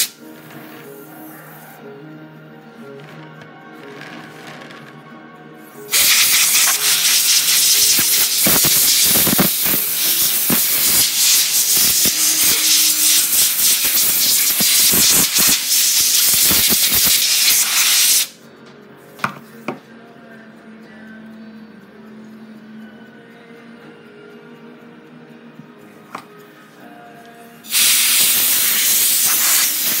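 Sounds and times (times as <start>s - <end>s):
aerosol spray hissing: 5.9s - 18.4s, 27.7s - 30.0s.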